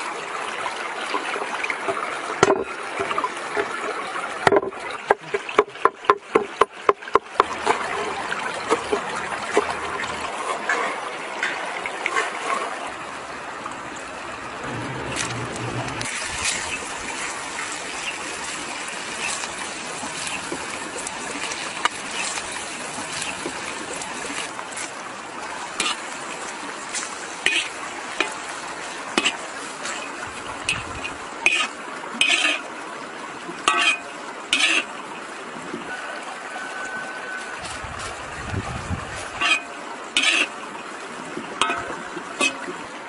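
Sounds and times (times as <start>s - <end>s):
pork frying in hot oil: 14.4s - 32.8s, 33.5s - 35.0s, 35.9s - 40.6s
spatula scraping and clanking wok: 14.6s - 24.6s, 25.8s - 26.1s, 27.0s - 28.4s, 29.2s - 32.7s, 33.7s - 34.9s, 39.4s - 40.6s, 41.6s - 42.6s.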